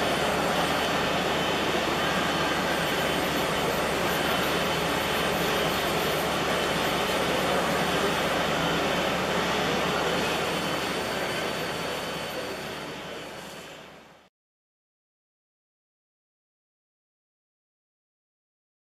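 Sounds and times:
milling machine whirring: 0.0 - 13.8.

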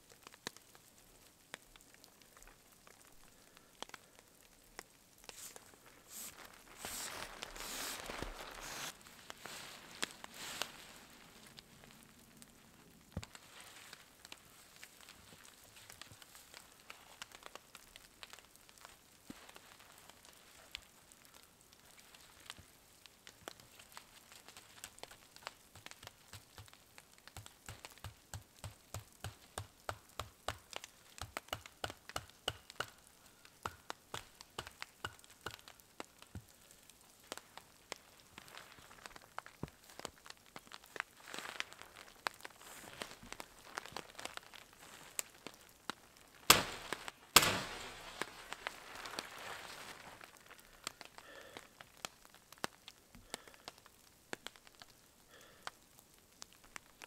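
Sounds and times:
tarp rustling: 5.2 - 21.0, 37.1 - 51.2.

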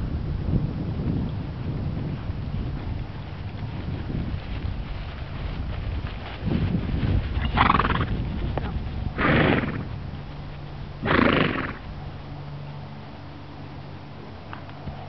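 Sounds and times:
horse calling: 7.2 - 10.0, 11.0 - 11.9.

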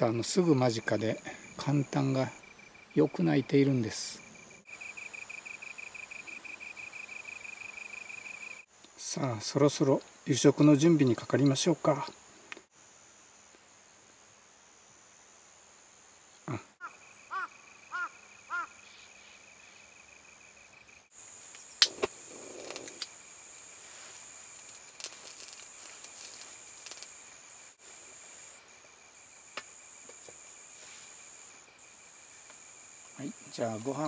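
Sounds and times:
crickets trilling: 0.0 - 34.0
bird calling: 16.8 - 19.8.

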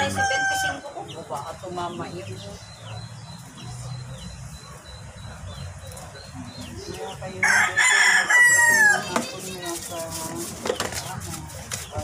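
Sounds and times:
rooster crowing: 0.0 - 0.9, 7.4 - 9.1.

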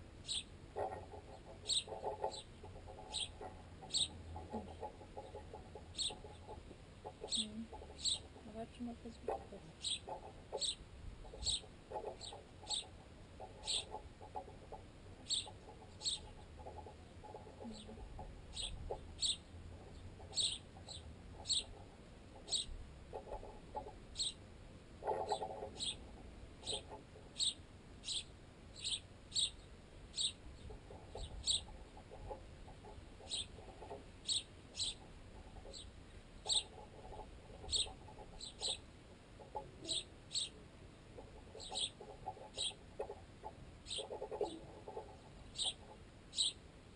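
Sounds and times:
sparrows chirping: 0.0 - 46.6
beaks tapping on bread: 41.2 - 45.1.

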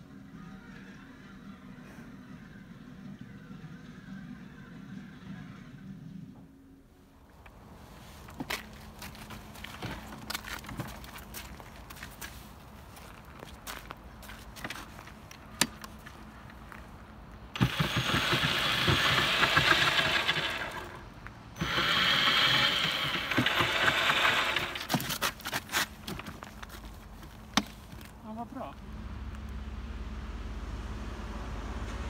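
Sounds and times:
electric drills spinning wheels: 17.6 - 25.2.

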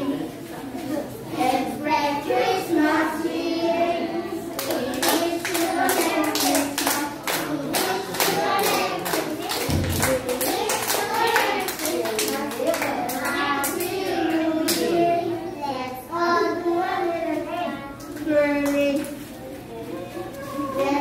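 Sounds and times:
group singing: 1.3 - 15.5
children clapping in rhythm: 4.5 - 15.0.

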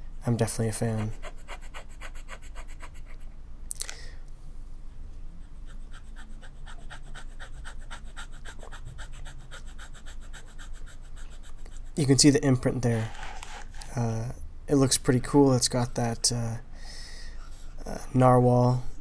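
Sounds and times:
fountain pen nib scratching paper: 0.4 - 3.2, 5.6 - 11.9, 13.0 - 13.9
short breath: 3.8 - 4.3, 16.7 - 17.7.

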